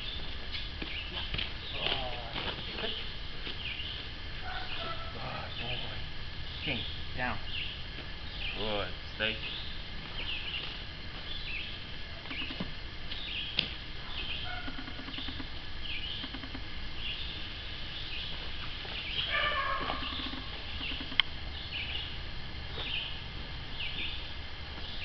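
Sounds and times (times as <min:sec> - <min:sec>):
songbird chirping: 0:00.0 - 0:25.0
sharp clicks: 0:12.2 - 0:13.8, 0:14.7 - 0:15.5, 0:16.1 - 0:16.7, 0:20.0 - 0:21.3.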